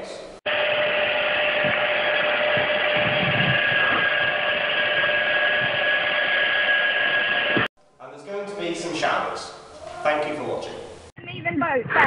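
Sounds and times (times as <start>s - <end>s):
hair dryer blowing: 0.5s - 7.7s
higher motor whine: 0.5s - 7.7s.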